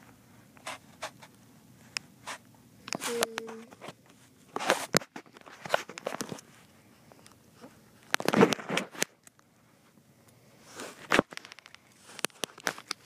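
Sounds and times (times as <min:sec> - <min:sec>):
light clicks and knocks of toy handling: 0:10.8 - 0:13.0.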